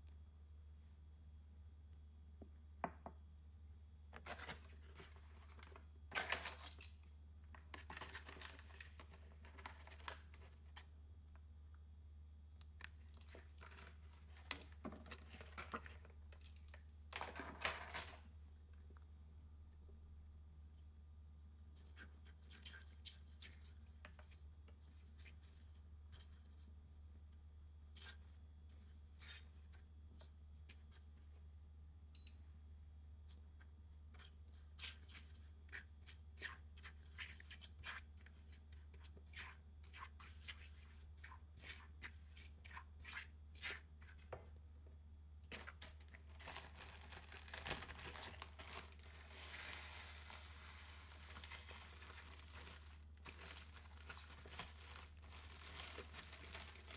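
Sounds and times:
plastic bag crinkling: 45.5 - 56.9
crumbs pouring into pan: 48.1 - 55.3.

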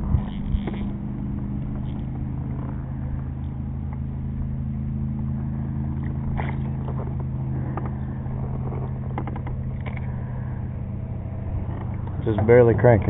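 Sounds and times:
motor humming: 0.0 - 13.0
fish splashing: 5.4 - 12.2.

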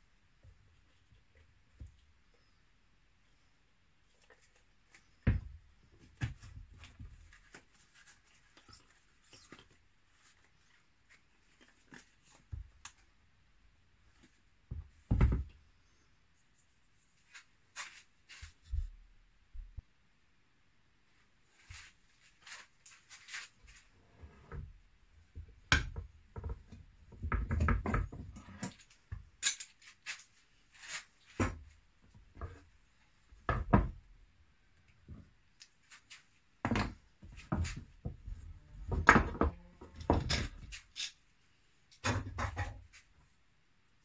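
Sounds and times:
metal clamps clicking and clattering: 28.7 - 29.9.

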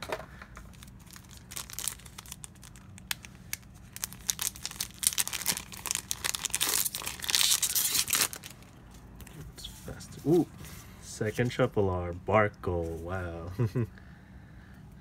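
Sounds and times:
foil wrappers crinkling and tearing: 0.6 - 8.8.

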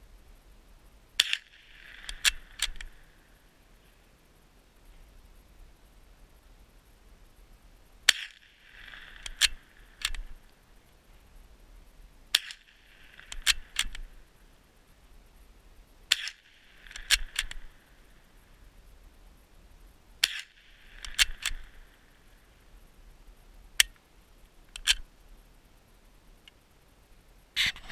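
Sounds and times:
rifle bolt metallic clicks: 1.2 - 3.0, 8.1 - 10.3, 12.3 - 14.1, 16.1 - 17.7, 20.2 - 21.8, 24.8 - 25.0.

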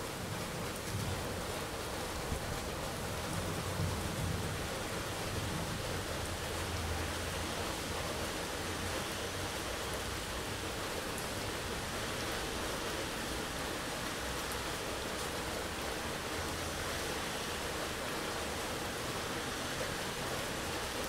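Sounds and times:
heavy rain falling: 0.0 - 21.0.

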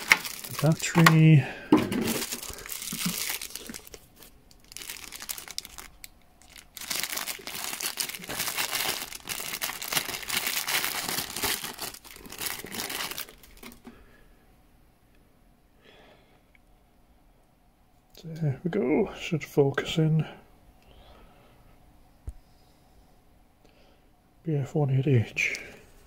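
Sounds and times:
plastic bag crinkling and rustling: 0.0 - 14.0.

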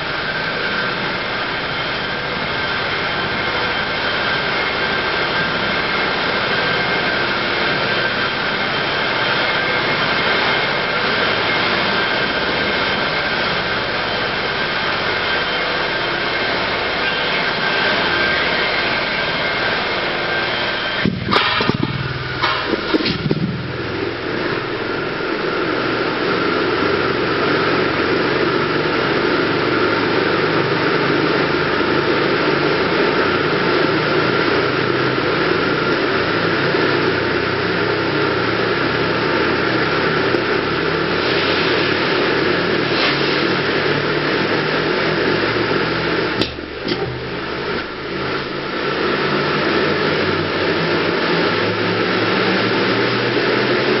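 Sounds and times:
rushing noise inside a pipe: 0.0 - 54.0.

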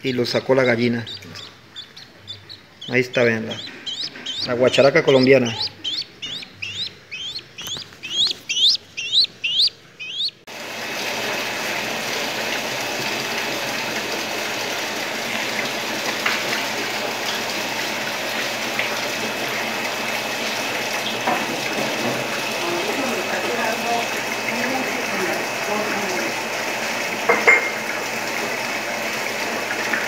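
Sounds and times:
bird chick cheeping shrilly: 0.6 - 10.4
rushing water: 2.8 - 30.0.

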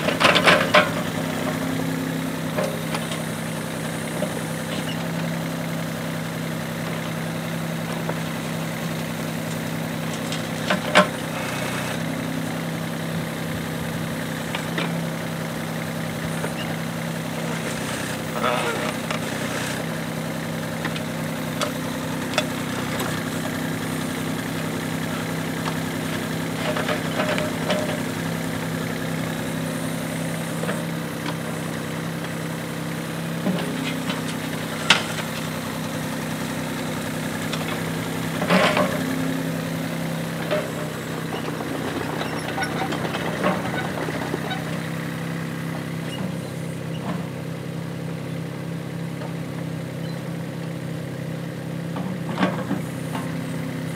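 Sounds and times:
excavator bucket clanking: 0.0 - 3.4, 9.6 - 11.7, 20.7 - 29.8, 33.3 - 47.4
excavator diesel engine running: 0.0 - 53.9.

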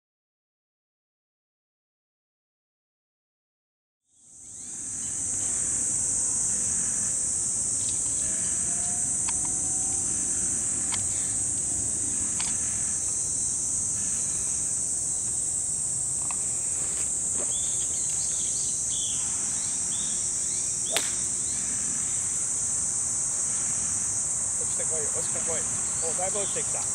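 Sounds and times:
insects droning: 4.1 - 26.9
golf club striking ball: 20.9 - 21.4.

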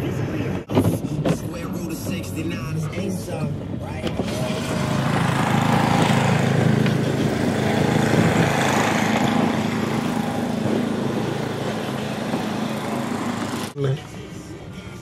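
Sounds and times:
motor engine running: 4.2 - 13.8.

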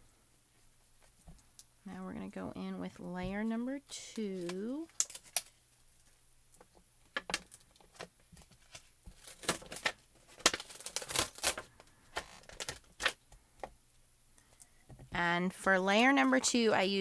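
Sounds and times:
plastic clicks taps and crinkles: 4.4 - 5.6, 6.5 - 13.8.

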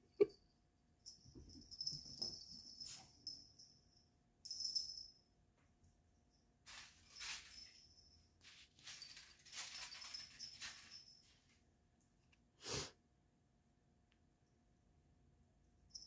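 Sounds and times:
small bell jingling: 0.1 - 5.3, 6.3 - 11.6.

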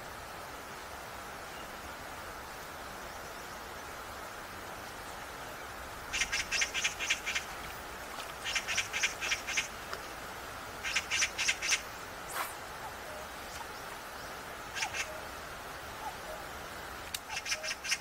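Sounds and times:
outdoor background hiss: 0.0 - 18.0
bird calling harsh notes: 14.7 - 15.2.

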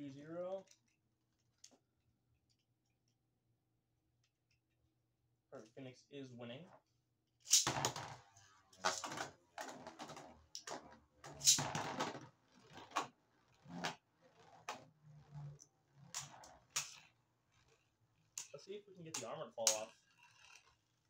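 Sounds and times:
spinning tops clacking: 7.5 - 8.1, 8.8 - 15.4, 16.0 - 17.1, 18.4 - 20.7.

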